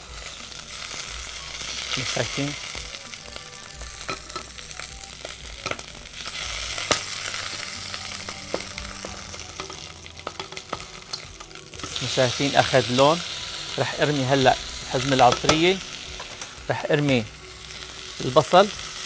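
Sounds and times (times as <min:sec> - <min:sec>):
chicken sizzling in oil: 0:00.0 - 0:19.0
metal tongs clicking on pot: 0:09.6 - 0:11.2.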